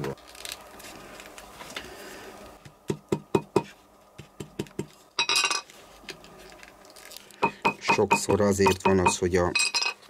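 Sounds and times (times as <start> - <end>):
hammer knocking leather on stone: 2.9 - 4.9.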